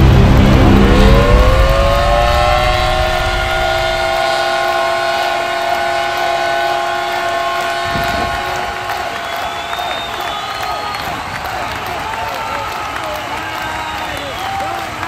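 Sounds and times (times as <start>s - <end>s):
horn blaring a chord: 0.0s - 9.3s
crowd cheering: 0.0s - 15.0s.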